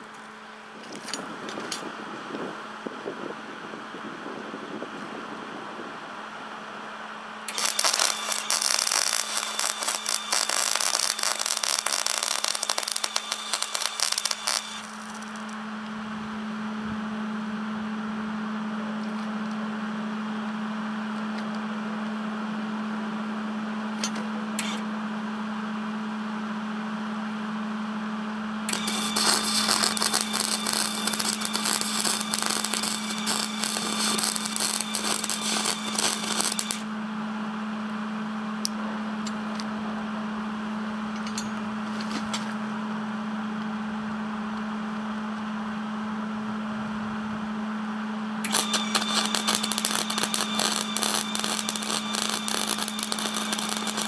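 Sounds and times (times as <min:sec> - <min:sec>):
steady low hum: 0:00.0 - 0:54.0
welder arc crackling and sizzling: 0:07.5 - 0:15.6, 0:28.7 - 0:36.8, 0:48.5 - 0:54.0.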